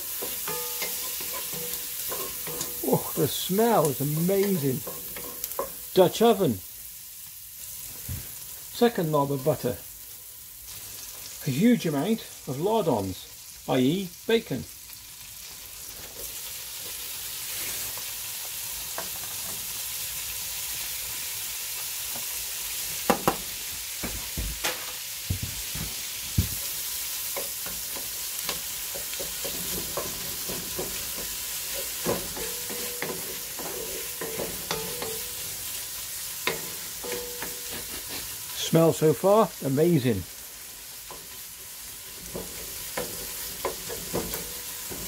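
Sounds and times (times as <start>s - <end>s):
bacon and onions sizzling in a pot: 0.0s - 45.0s
wooden spatula scraping a pot: 0.1s - 5.7s, 27.4s - 35.8s, 36.4s - 38.6s.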